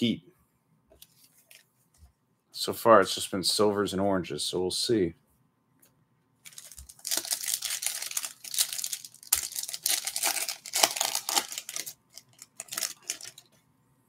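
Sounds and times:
foil wrapper tearing and crinkling: 6.5 - 13.5.

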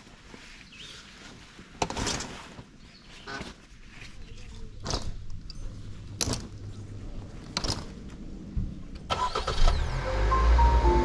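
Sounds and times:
car engine humming: 9.1 - 11.0
background music: 9.8 - 11.0.

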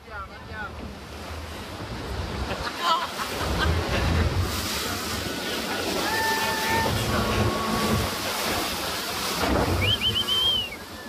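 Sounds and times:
water rushing past boat: 0.0 - 11.0
low rumble: 3.4 - 5.3.

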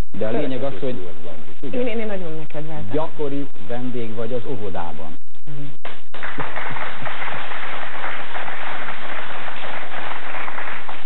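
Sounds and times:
person talking: 0.0 - 5.1
audience applauding: 6.1 - 11.0.

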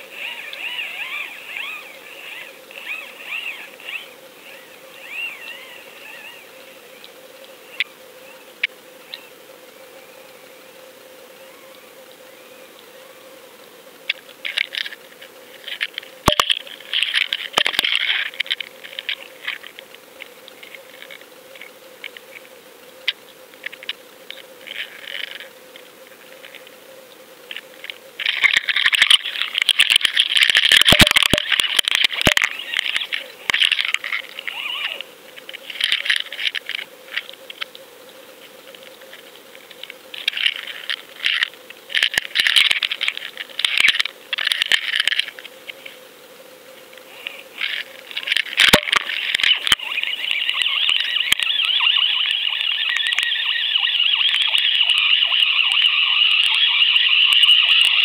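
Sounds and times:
faint steady hum: 0.0 - 58.0
underwater clicking and rattling: 15.6 - 19.8, 27.5 - 34.5, 35.4 - 37.7, 39.8 - 45.4, 47.6 - 55.8.

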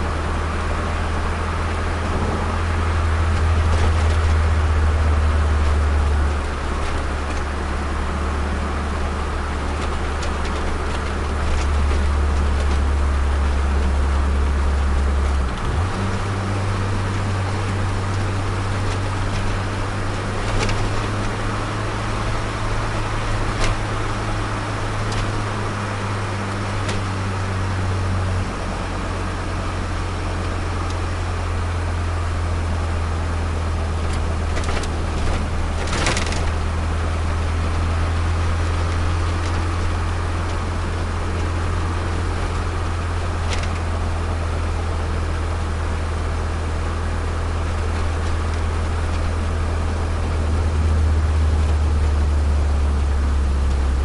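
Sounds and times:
car engine droning: 0.0 - 54.0
short rattle: 34.0 - 44.4.

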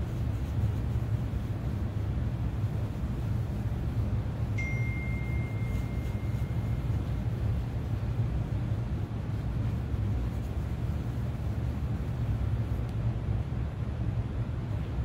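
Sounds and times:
light metallic ping: 4.6 - 6.3.

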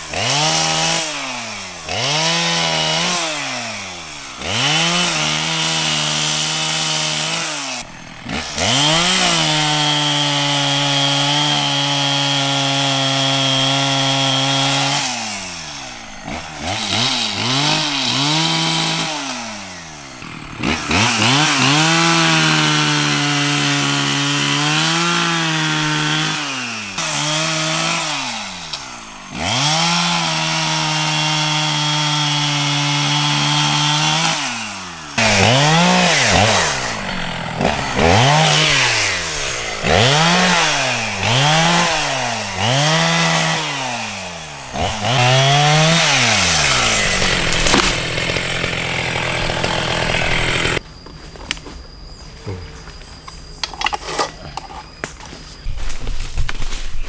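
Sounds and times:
two-stroke engine revving: 0.0 - 50.8.

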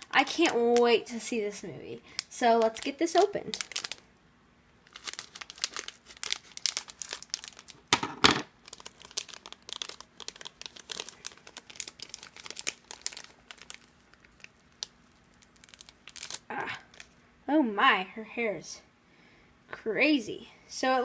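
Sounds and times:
plastic foil bag crinkling: 2.1 - 4.1, 4.8 - 17.2.

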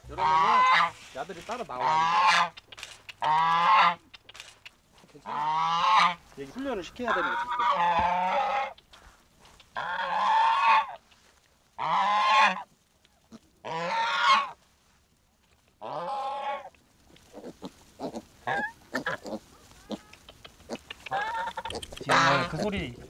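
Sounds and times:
goose honking: 0.1 - 1.0, 1.7 - 2.6, 3.2 - 4.0, 5.2 - 6.2, 7.0 - 8.8, 9.8 - 11.0, 11.8 - 12.7, 13.6 - 14.6, 15.8 - 16.7, 21.0 - 23.0.

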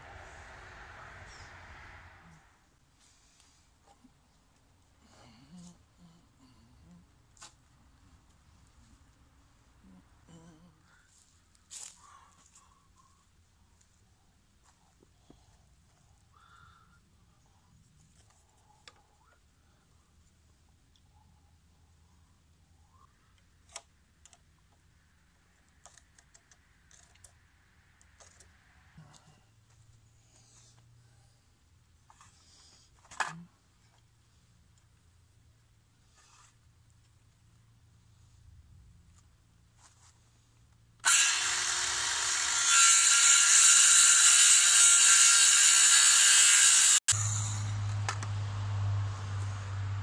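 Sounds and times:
circular saw cutting wood: 41.0 - 50.0.

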